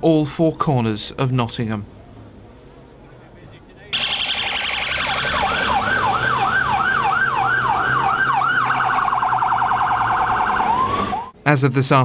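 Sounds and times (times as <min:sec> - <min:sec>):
police siren: 0:04.0 - 0:11.4.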